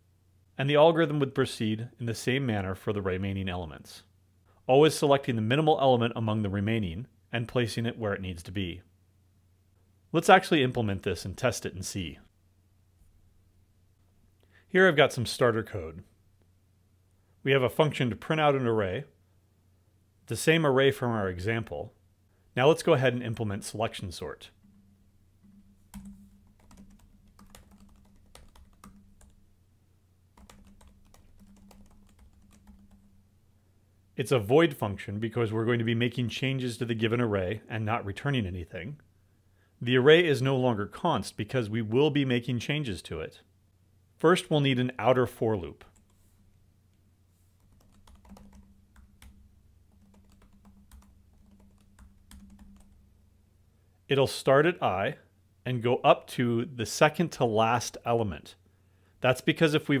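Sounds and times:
low steady hum: 0.0s - 60.0s
keyboard typing: 25.4s - 29.4s, 30.4s - 33.2s, 47.6s - 53.0s.

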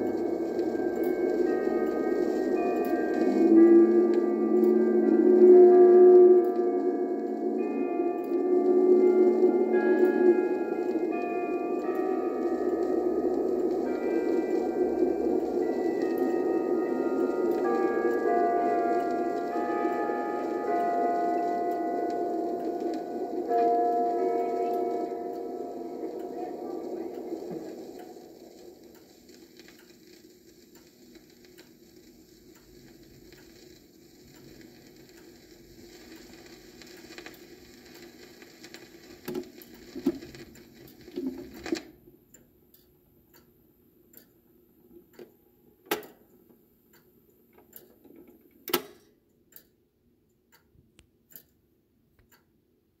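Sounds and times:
low hum: 0.0s - 29.7s
vinyl surface hiss: 0.0s - 42.2s
record pops: 38.0s - 41.9s.

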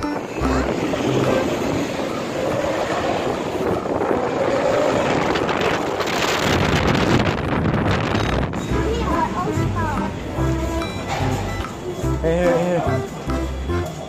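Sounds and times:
wind rumbling on microphone: 0.0s - 9.4s
city street traffic: 0.0s - 14.0s.

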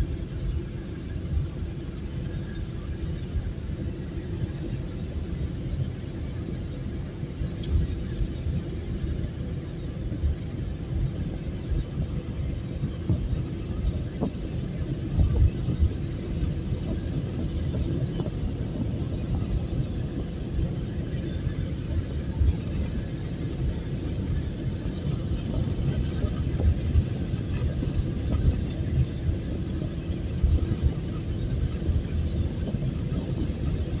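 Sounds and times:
vehicle road and engine rumble: 0.0s - 34.0s
low road thumps: 10.0s - 34.0s.

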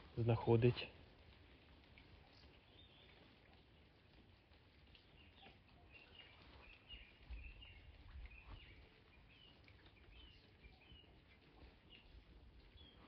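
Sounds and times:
small birds chirping: 0.1s - 13.0s.

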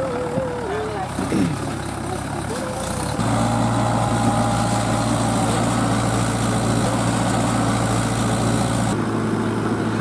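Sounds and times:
tractor diesel engine running: 0.0s - 10.0s.

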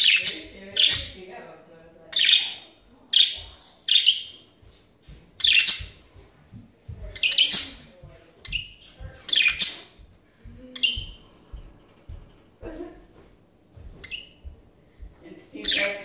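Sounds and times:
budgerigars chirping: 0.0s - 1.3s, 2.1s - 4.4s, 5.4s - 6.0s, 7.1s - 10.0s, 10.8s - 11.2s, 14.0s - 14.5s, 15.6s - 16.0s.

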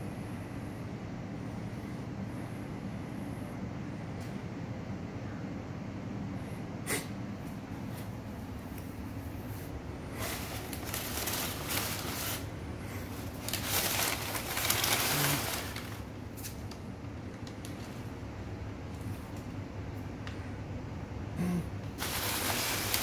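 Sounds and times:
packing paper crinkling: 10.1s - 16.8s, 22.0s - 23.0s.

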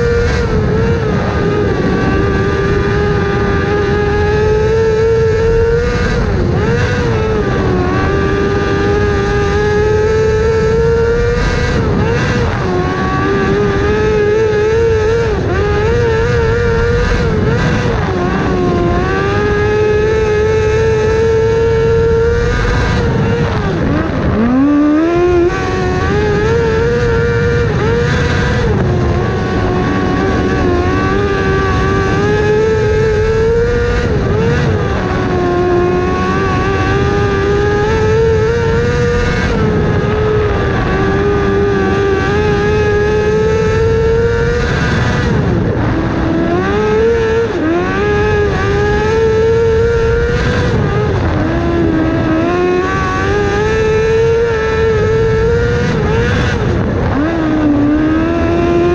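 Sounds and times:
race car engine at high revs: 0.0s - 58.9s
rush of wind and road noise: 0.0s - 58.9s.

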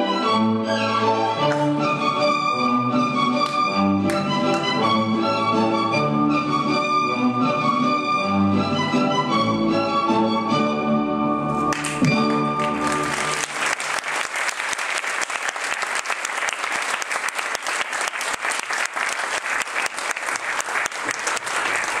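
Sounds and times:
orchestral music: 0.0s - 13.8s
audience applauding: 11.6s - 22.0s.

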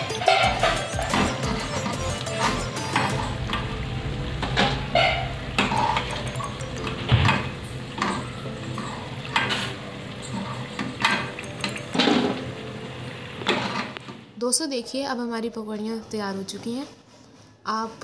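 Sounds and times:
oil sizzling: 0.0s - 14.4s.

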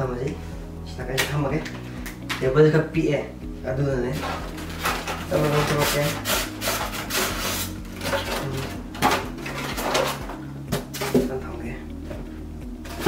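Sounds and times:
packaging rubbing on cardboard: 4.2s - 8.2s.

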